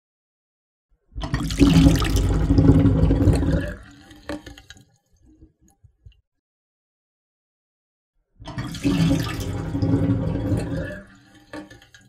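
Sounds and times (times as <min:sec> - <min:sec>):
water rushing down a drain: 0:01.2 - 0:05.6, 0:08.4 - 0:12.0.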